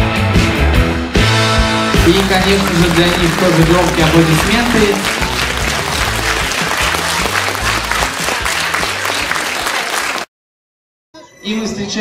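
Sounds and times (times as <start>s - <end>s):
music with bass line: 0.0s - 9.0s
audience applauding: 1.9s - 10.3s.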